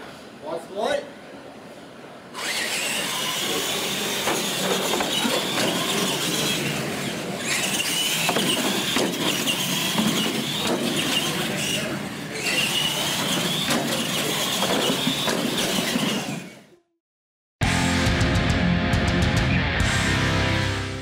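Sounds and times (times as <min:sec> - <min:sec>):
toy car motor whine: 0:02.4 - 0:16.8.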